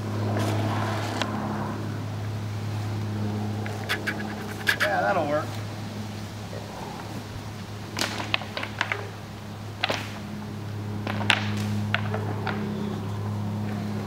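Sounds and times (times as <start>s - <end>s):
steady low hum: 0.0s - 14.0s
twigs and branches snapping: 7.9s - 9.1s, 9.8s - 10.3s, 11.0s - 12.7s.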